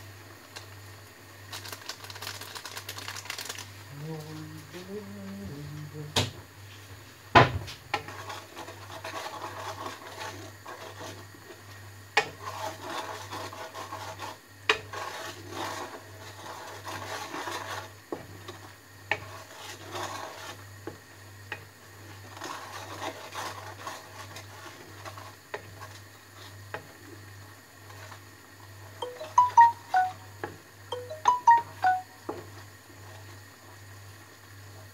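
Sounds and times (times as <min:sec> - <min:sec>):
spatula scraping a metal pan: 0:07.9 - 0:11.2, 0:12.2 - 0:20.6, 0:22.2 - 0:25.6.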